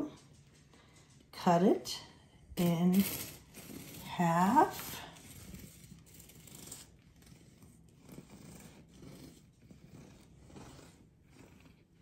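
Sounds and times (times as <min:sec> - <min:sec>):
knife sawing through bread crust: 0:02.6 - 0:12.0.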